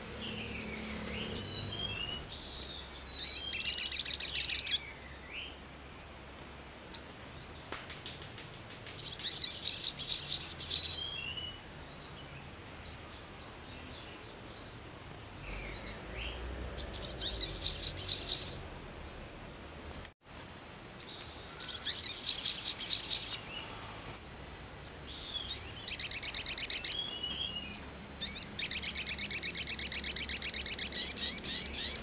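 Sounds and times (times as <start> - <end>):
bird trilling chatter: 0.2 - 4.8
thin bird chirps: 0.2 - 5.0, 8.6 - 12.1, 14.5 - 19.4, 21.0 - 23.8, 24.8 - 32.0.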